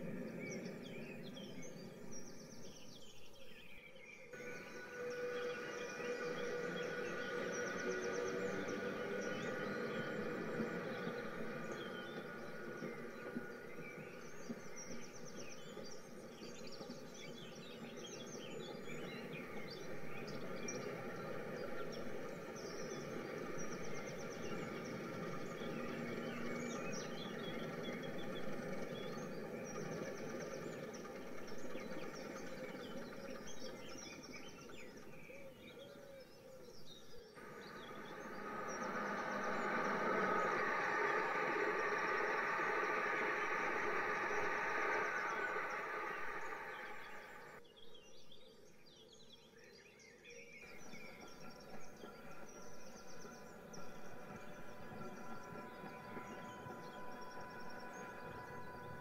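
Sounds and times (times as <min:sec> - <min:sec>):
train rushing: 0:00.0 - 0:03.0, 0:04.4 - 0:35.7, 0:37.4 - 0:47.6, 0:50.6 - 0:59.0
birdsong chirps: 0:00.0 - 0:59.0
steady background rush: 0:37.4 - 0:47.6.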